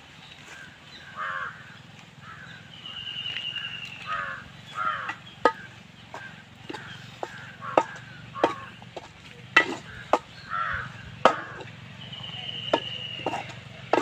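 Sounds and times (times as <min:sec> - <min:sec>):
metal ladle clinking on bowl: 0:12.7 - 0:14.0.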